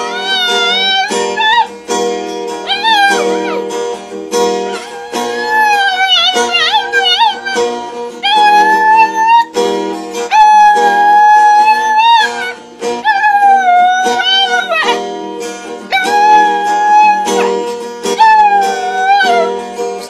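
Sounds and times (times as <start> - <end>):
dog howling: 0.0 - 1.7, 2.6 - 3.7, 4.6 - 9.6, 10.3 - 15.0, 15.9 - 19.6
acoustic guitar strumming: 0.0 - 20.0.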